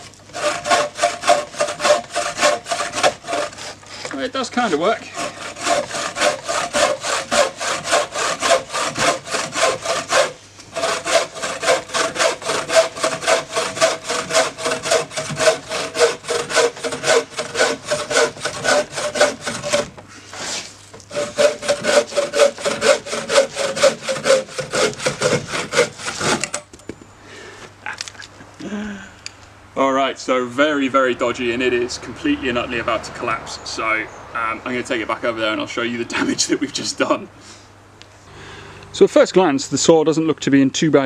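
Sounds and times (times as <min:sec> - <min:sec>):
saw cutting a log: 0:00.0 - 0:26.6.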